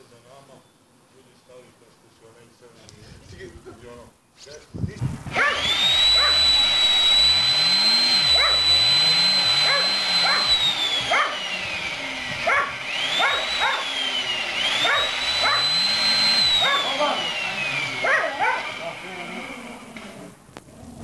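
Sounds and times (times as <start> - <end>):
chainsaw running: 5.2 - 20.4
dogs barking: 5.3 - 6.4, 8.4 - 8.6, 9.6 - 11.5, 12.4 - 13.9, 14.8 - 15.8, 16.6 - 17.0, 18.0 - 18.8.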